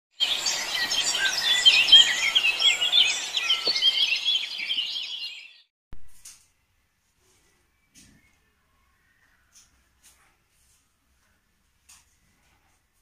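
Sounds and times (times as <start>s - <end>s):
small birds chirping: 0.2s - 5.7s.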